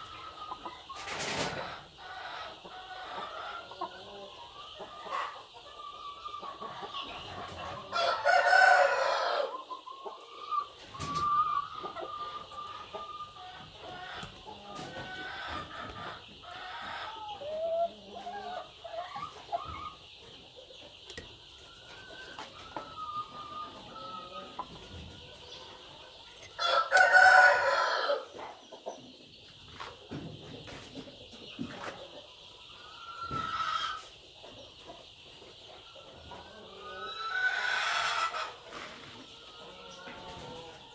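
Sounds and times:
chickens clucking: 0.0s - 40.9s
rooster crowing: 7.9s - 9.5s, 26.6s - 28.3s.

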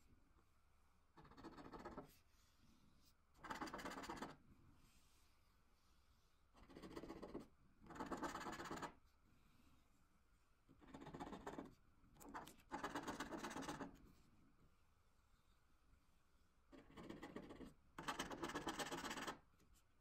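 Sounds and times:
scraper scratching scratch card: 10.9s - 14.0s, 16.8s - 19.4s.

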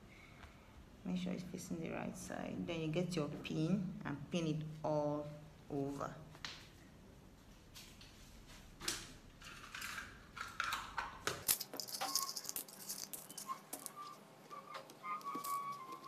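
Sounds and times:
clicks and rustles of pins: 8.8s - 16.0s
pins rattling in plastic box: 9.5s - 14.1s.

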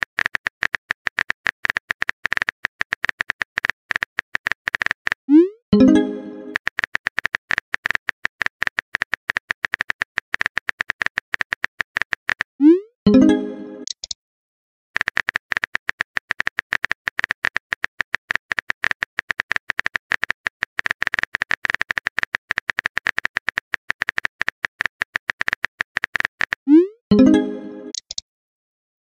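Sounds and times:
phone keyboard typing clicks: 0.0s - 5.2s, 5.8s - 12.5s, 13.8s - 14.2s, 15.0s - 26.7s, 27.3s - 28.2s
message sent chime: 5.8s - 6.6s, 13.1s - 13.9s, 26.8s - 28.0s.

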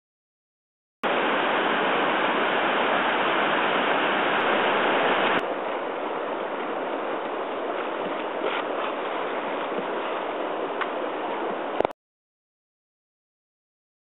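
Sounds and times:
whitewater rapids rushing: 1.0s - 11.9s
hiss of open water: 1.1s - 11.8s.

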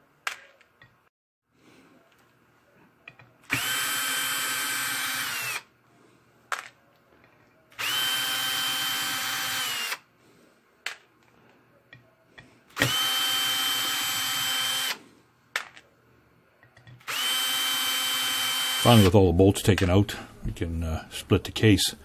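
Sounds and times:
cordless drill motor running: 3.5s - 5.7s, 7.7s - 10.1s, 12.8s - 15.0s, 17.0s - 19.2s.

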